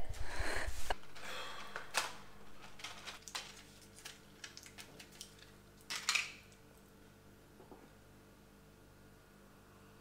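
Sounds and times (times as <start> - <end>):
packet crinkling and rustling: 1.9 - 6.5.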